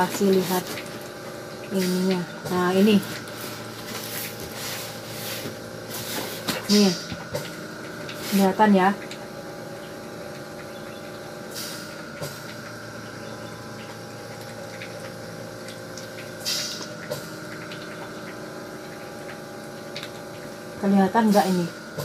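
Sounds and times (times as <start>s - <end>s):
mechanical room hum: 0.0s - 22.0s.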